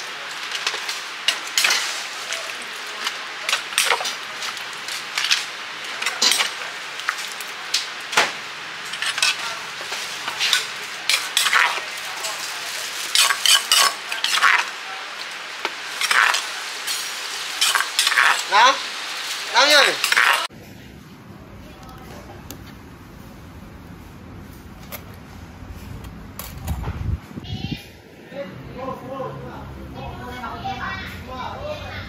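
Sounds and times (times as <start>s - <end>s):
utensils clinking against dishes: 0.0s - 14.8s, 15.6s - 18.5s, 19.8s - 20.5s
steady hiss: 0.0s - 20.5s.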